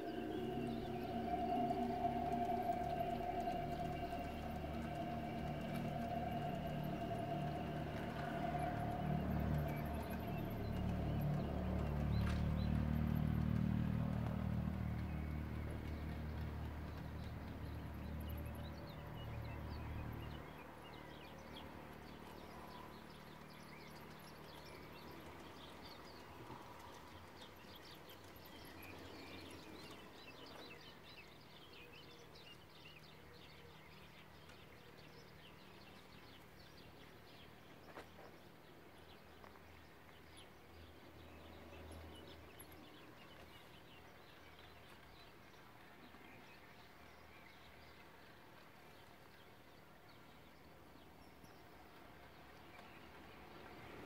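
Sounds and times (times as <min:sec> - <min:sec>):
model train rumble: 0:00.0 - 0:20.2
wheels ticking over rail joints: 0:00.0 - 0:31.6
quiet outdoor air: 0:00.0 - 0:54.0.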